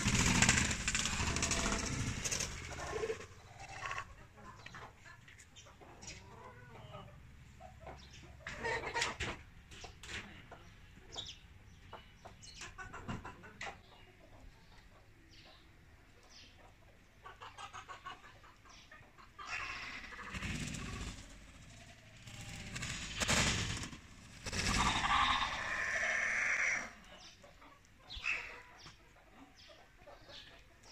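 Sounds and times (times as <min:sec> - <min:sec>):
wing flapping: 0:00.0 - 0:03.4, 0:20.0 - 0:25.8
chickens clucking: 0:00.0 - 0:30.9.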